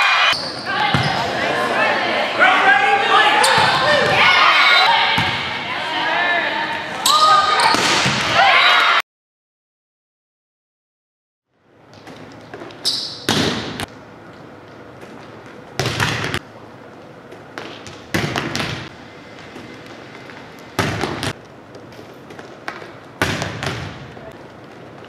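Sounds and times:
volleyballs slapping gym floor: 11.9 - 14.0, 15.0 - 16.4, 17.3 - 18.9, 20.8 - 25.0.

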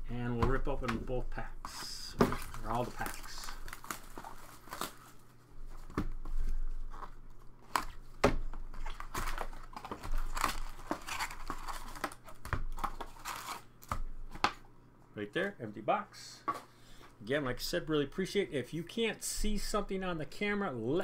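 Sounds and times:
card packs crinkling in wrappers: 1.7 - 5.4, 8.7 - 14.0.

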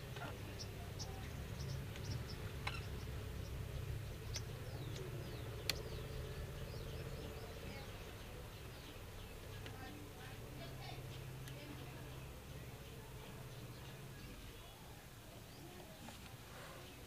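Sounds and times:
small birds chirping: 0.0 - 17.0.

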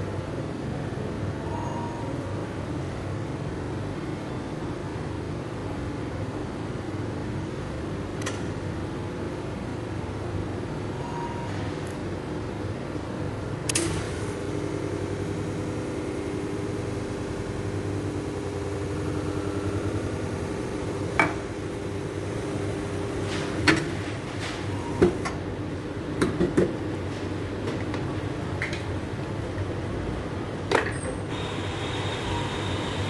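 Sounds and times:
machine hum: 12.4 - 26.2, 31.3 - 33.0.

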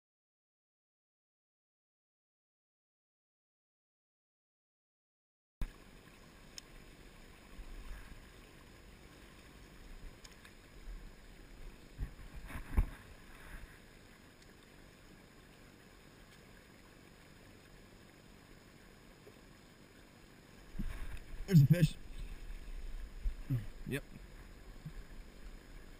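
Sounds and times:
river hiss: 5.6 - 25.9.

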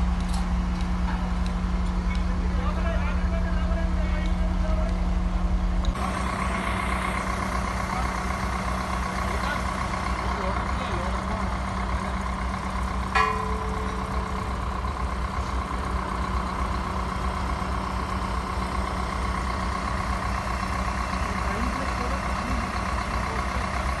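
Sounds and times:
diesel engine idling with whine: 0.0 - 24.0
metallic clank: 13.1 - 15.2.

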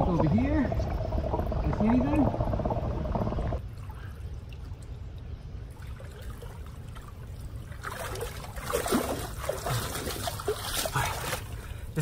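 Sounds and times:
water sloshing around wading legs: 3.6 - 12.0.

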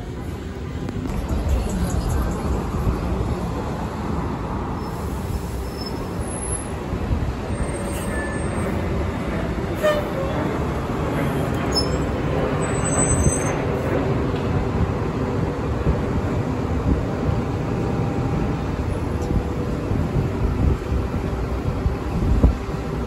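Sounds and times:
bus engine rumbling: 0.0 - 23.0
brief squeak: 7.6 - 8.8.

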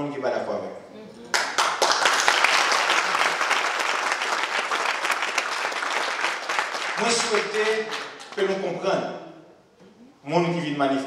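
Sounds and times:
audience applauding: 1.3 - 8.6.

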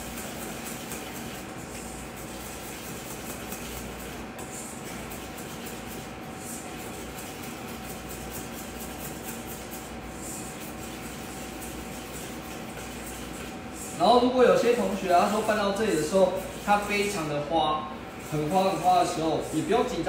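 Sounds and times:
spatula scraping steel bowl: 0.0 - 20.0
steady background hum: 0.0 - 20.0.

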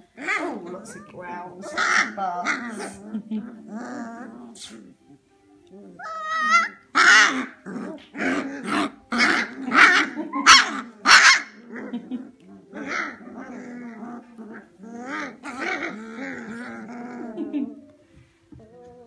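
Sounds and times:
puppies growling: 0.0 - 19.0
puppies yapping: 5.9 - 17.8.

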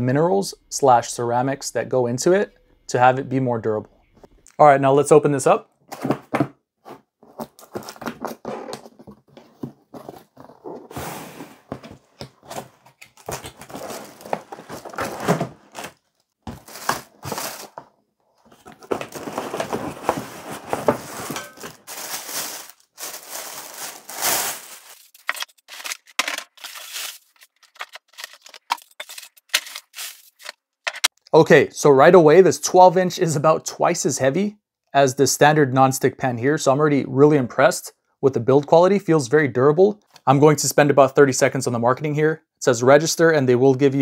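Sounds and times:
plastic bag crinkling: 12.5 - 17.8, 18.5 - 30.5
cardboard box flaps folding: 18.5 - 21.4.

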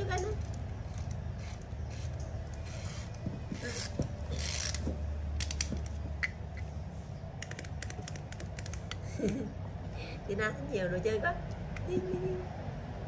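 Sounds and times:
wind-up toy clockwork clicking: 7.4 - 9.0.

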